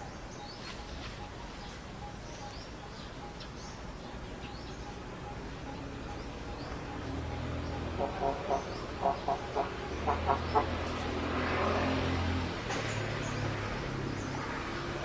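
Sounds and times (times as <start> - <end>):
animal clucking calls: 4.8 - 11.1.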